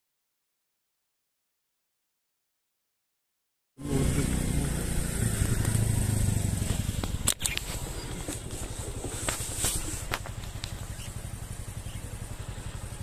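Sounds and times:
motorcycle engine running: 3.8s - 13.0s.

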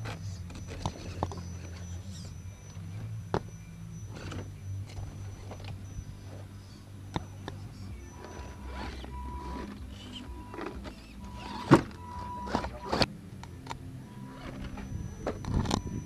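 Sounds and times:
electric motors running: 0.0s - 16.0s
steady high tone: 0.2s - 16.0s.

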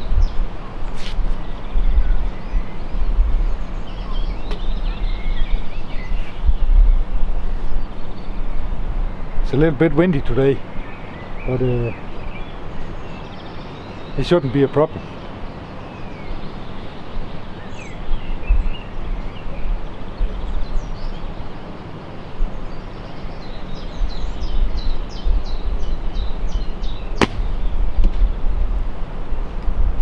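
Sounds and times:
wind rumbling on microphone: 0.0s - 13.6s, 16.1s - 30.0s
birds chirping: 0.0s - 28.5s
bow string snap: 27.2s - 28.2s.

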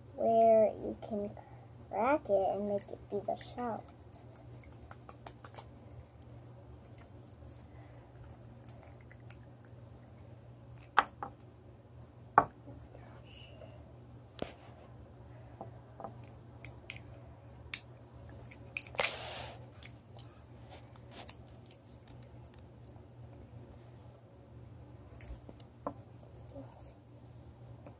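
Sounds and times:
crackly rustle: 18.0s - 24.1s.

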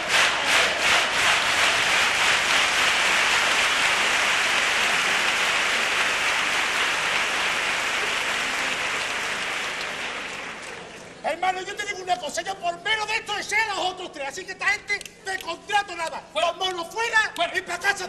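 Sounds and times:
audience applauding: 0.0s - 11.2s.

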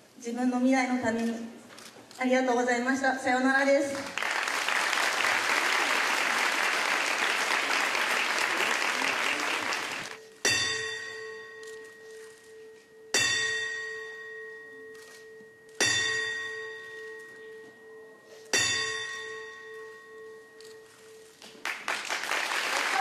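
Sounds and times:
boxing bell strikes: 10.3s - 21.2s.

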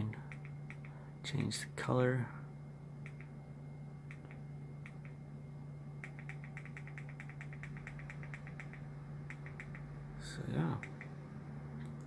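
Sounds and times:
steady low hum: 0.0s - 12.0s
remote control buttons clicking: 0.2s - 1.0s, 3.0s - 3.3s, 4.1s - 5.2s, 6.0s - 9.9s, 10.8s - 11.2s.

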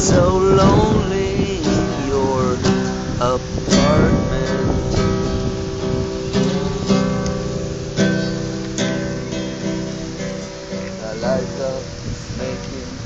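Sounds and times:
man singing: 0.0s - 5.4s, 11.0s - 13.0s
acoustic guitar strumming: 0.0s - 13.0s.

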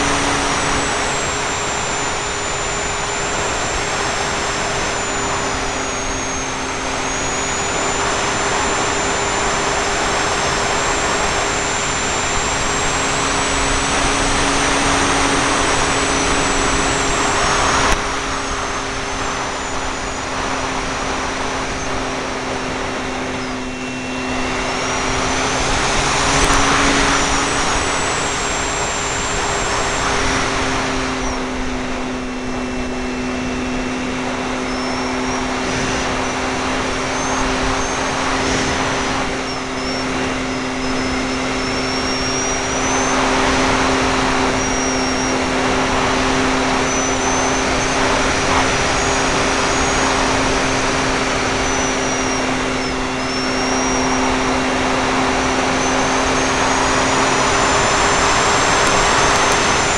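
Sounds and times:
electric motor humming: 0.0s - 59.9s
sharp click: 58.6s - 59.9s.

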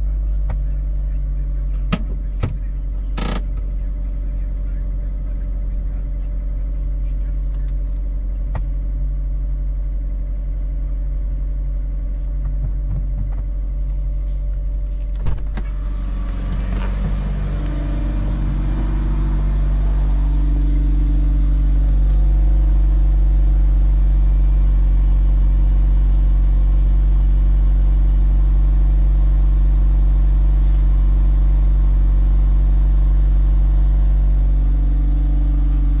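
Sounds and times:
car engine idling: 0.0s - 36.0s.

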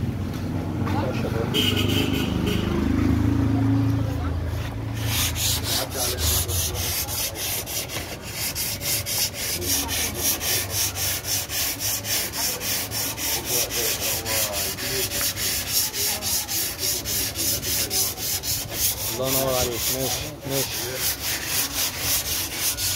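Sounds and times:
sandpaper rasping by hand: 4.6s - 22.9s.

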